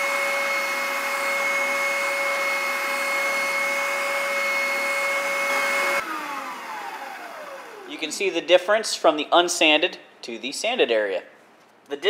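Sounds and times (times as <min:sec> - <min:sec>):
spindle sander whining: 0:00.0 - 0:08.1.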